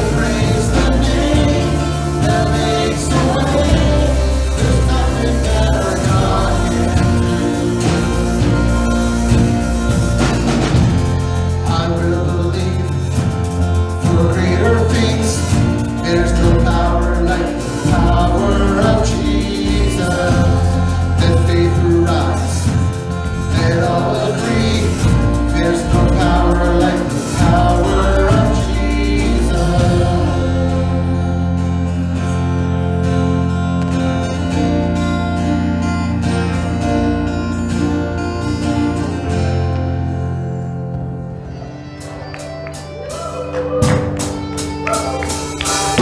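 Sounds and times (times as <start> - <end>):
lead and harmony vocals: 0.0 - 32.4
strummed acoustic guitars: 0.0 - 46.0
worship band playing: 0.0 - 46.0.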